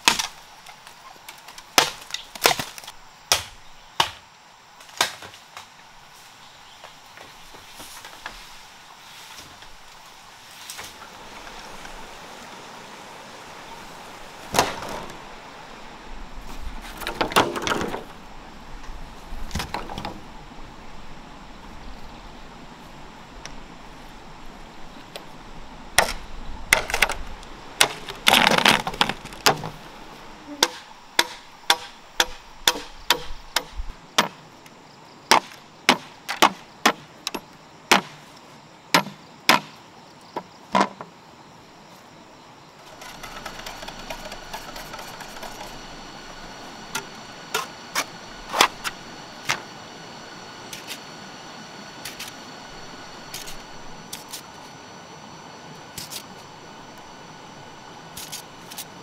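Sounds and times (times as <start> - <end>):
knife chopping bamboo: 30.6 - 34.3.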